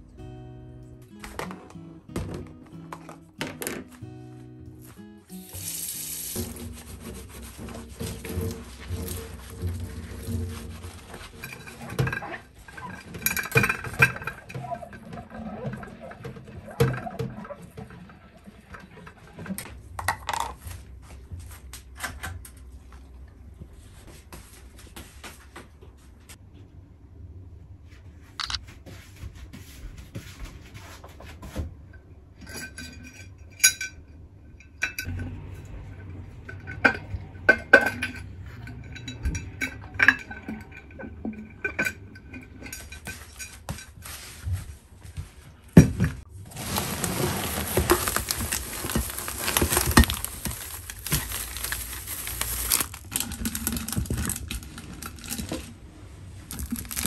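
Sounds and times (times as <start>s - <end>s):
rubbing and rustling: 4.8s - 16.7s, 46.2s - 57.0s
glass jars clinking: 36.4s - 43.9s, 46.9s - 54.0s
wire clasps rattling: 46.6s - 55.7s.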